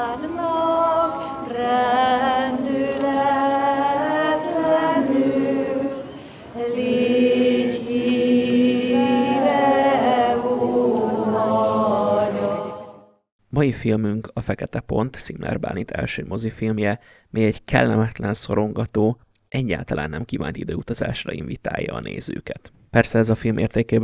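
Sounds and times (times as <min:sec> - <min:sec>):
woman singing long notes: 0:00.0 - 0:13.1.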